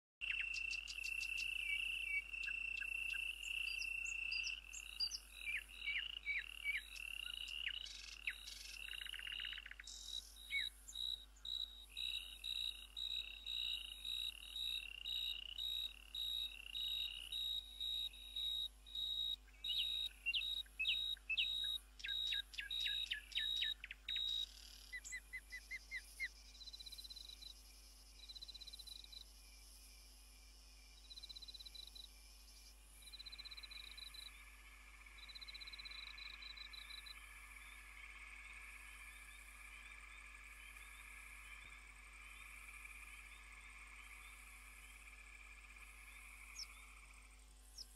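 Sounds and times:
high chirps and whistled calls: 0.2s - 27.0s.

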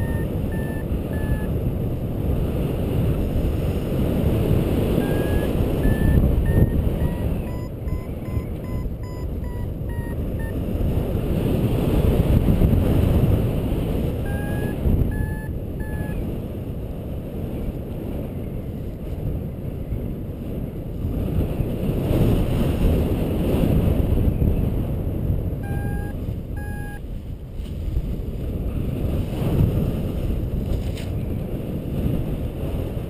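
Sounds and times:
variometer short beeps: 0.0s - 1.5s, 4.9s - 10.6s, 14.2s - 16.2s, 25.6s - 27.0s
wind rushing over microphone: 0.0s - 33.0s.

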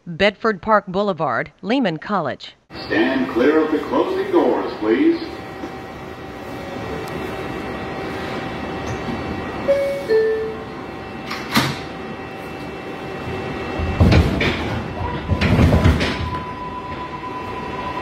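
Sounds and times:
train motor whine: 2.8s - 18.0s
train rumbling and knocking: 3.6s - 18.0s
two-tone door chime: 9.7s - 10.7s
sliding doors thumping shut: 13.8s - 16.6s.

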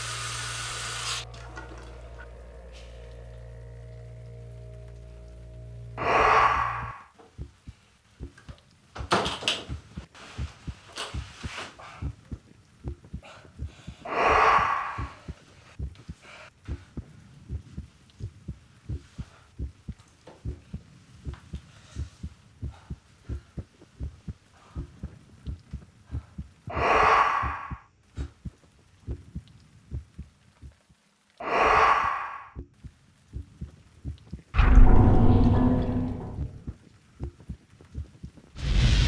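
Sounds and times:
heartbeat thumps: 6.4s - 8.6s, 9.7s - 31.1s, 32.6s - 39.0s
loud deep hit: 34.6s - 36.7s.

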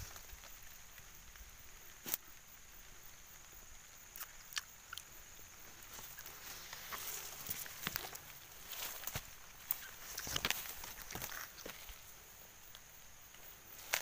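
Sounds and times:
dry leaves crackling underfoot: 0.0s - 2.4s, 5.7s - 14.0s.

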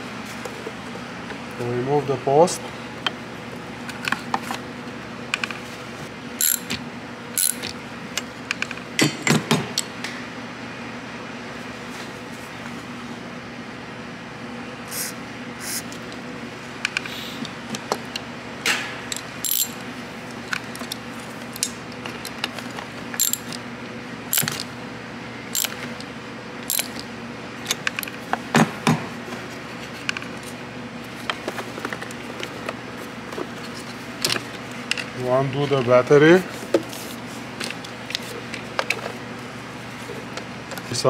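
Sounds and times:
socket ratchet clicking: 6.4s - 6.8s, 7.4s - 7.7s, 19.1s - 19.8s, 23.2s - 23.6s, 24.3s - 24.6s, 25.6s - 25.8s, 26.6s - 27.0s
metal tools clinking: 26.7s - 27.0s.

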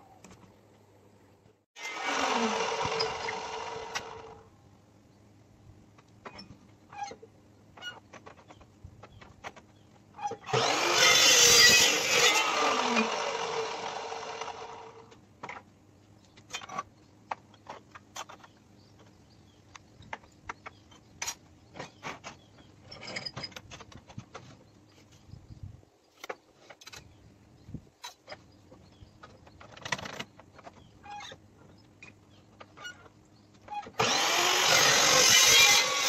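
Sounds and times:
chop saw cutting steel: 1.8s - 4.4s, 10.4s - 15.1s, 34.0s - 36.0s.

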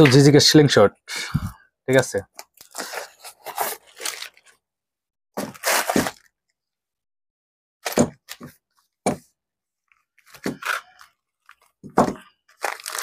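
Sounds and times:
plastic packaging crinkling: 2.4s - 4.6s, 12.5s - 13.0s.

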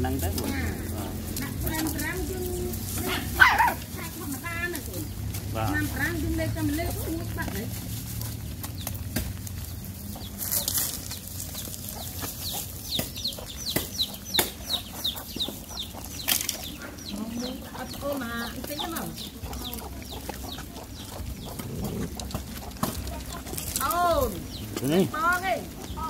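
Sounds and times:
bird chirping: 0.0s - 26.0s
chewing: 0.2s - 26.0s
dogs eating from metal bowl: 15.4s - 26.0s.

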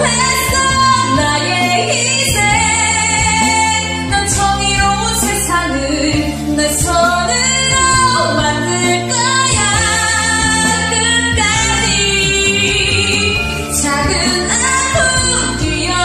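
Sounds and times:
instrumental backing track: 0.0s - 16.0s
woman singing: 0.0s - 16.0s.

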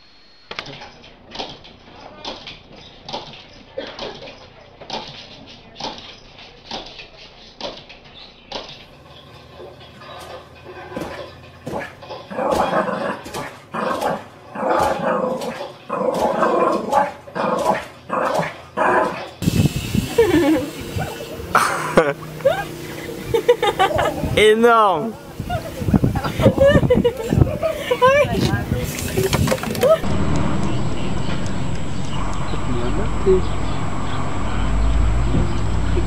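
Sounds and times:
dog barking: 10.9s - 19.4s.

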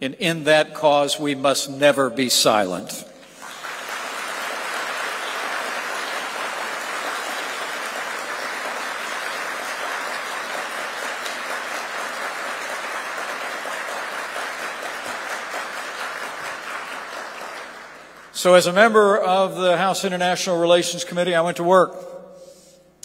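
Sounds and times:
audience applauding: 3.2s - 18.3s.

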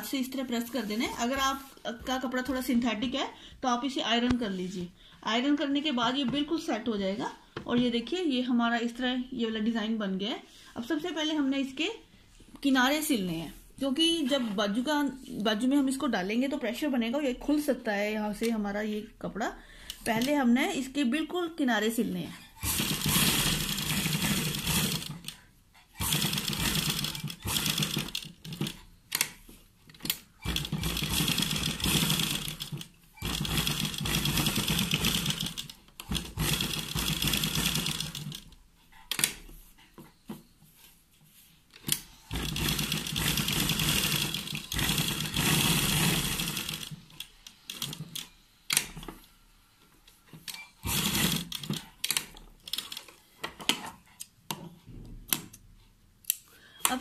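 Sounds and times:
sewing machine stitching: 22.5s - 29.4s, 30.0s - 38.5s, 41.8s - 49.0s, 50.5s - 53.1s.

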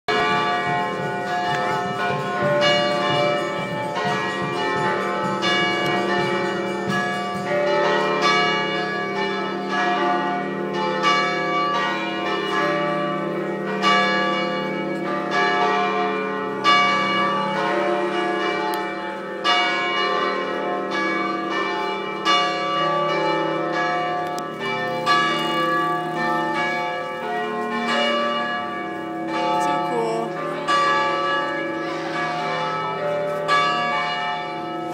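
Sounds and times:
church bells pealing: 0.1s - 34.9s.

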